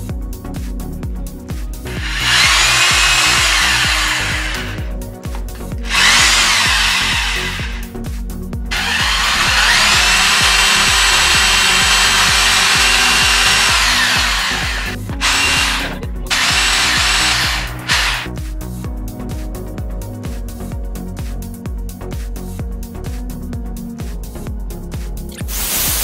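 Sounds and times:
background music with a beat: 0.0s - 26.0s
electric drill boring into metal: 1.9s - 4.9s, 5.8s - 7.9s, 8.7s - 18.3s.

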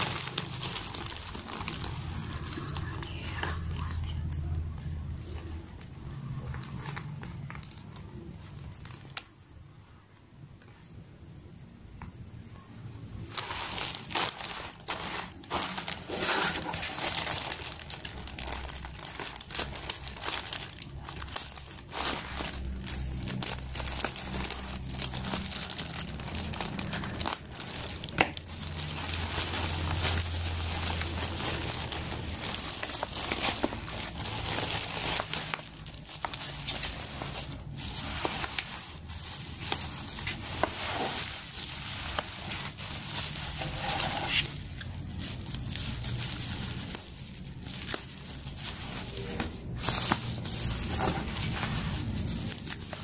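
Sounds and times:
plastic bag crinkling and rustling: 0.0s - 9.3s, 13.2s - 53.0s.

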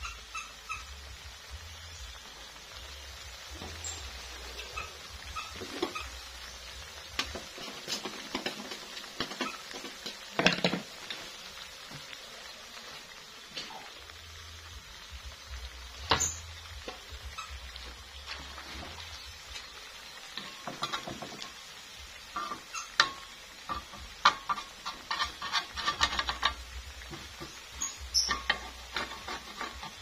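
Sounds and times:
cracker sizzling in hot oil: 0.0s - 30.0s
oil popping: 0.0s - 30.0s.

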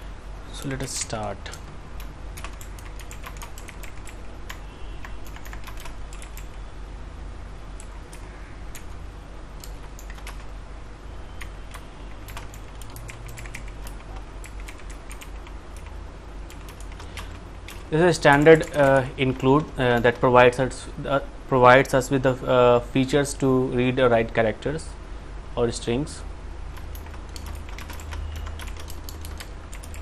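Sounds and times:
low steady hum: 0.0s - 30.0s
keyboard keystroke clicks: 1.5s - 6.6s, 9.6s - 10.5s, 11.4s - 19.7s, 26.8s - 30.0s.

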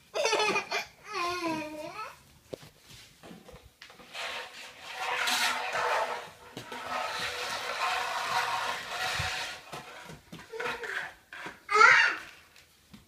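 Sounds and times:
vacuum nozzle scraping floor tiles: 3.9s - 11.6s.

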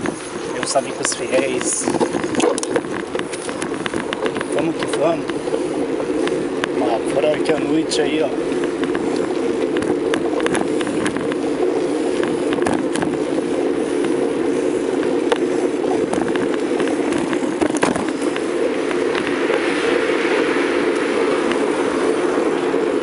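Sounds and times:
bike rattling clicks: 0.0s - 6.8s, 8.4s - 22.6s
bicycle tyres rumbling on road: 0.0s - 23.0s
air rushing past: 7.9s - 23.0s.

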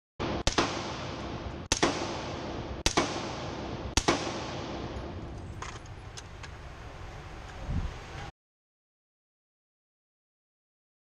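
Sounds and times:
suppressed rifle shots echoing: 0.2s - 5.8s.

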